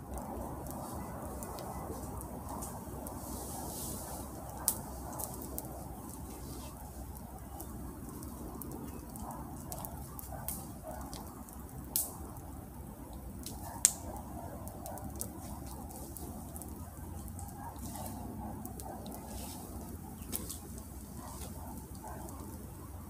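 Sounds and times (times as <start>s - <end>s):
sharp clicks and snaps: 13.4s - 14.2s
log handling noise: 15.2s - 22.7s.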